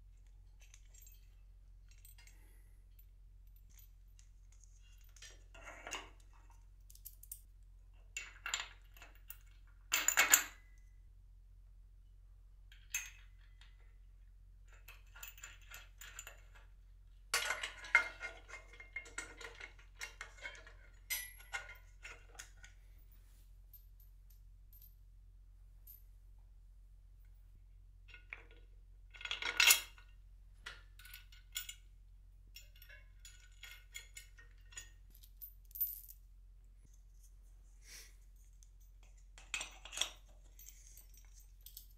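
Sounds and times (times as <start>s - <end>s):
metal hardware clinking and rattling: 17.4s - 22.8s, 32.5s - 36.2s, 38.8s - 41.9s.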